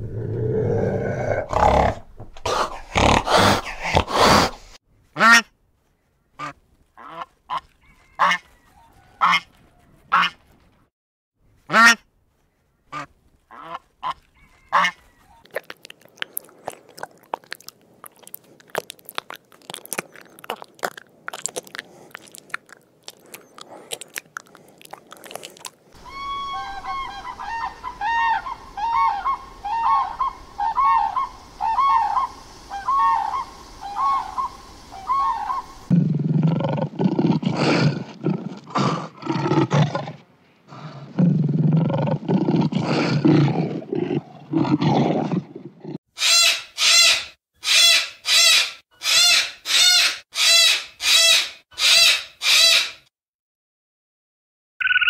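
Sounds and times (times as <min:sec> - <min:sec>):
crane calling: 0:26.0 - 0:35.9.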